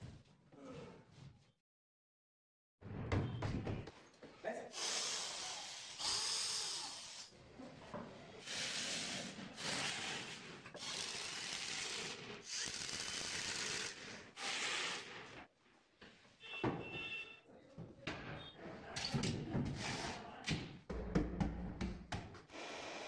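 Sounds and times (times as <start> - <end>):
knocks: 20.9 - 22.4.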